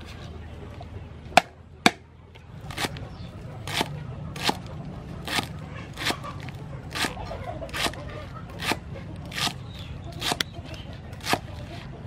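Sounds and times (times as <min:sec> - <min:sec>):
cleaver chopping on wooden block: 0:01.4 - 0:02.0, 0:03.6 - 0:06.2, 0:10.2 - 0:10.5, 0:11.2 - 0:11.5.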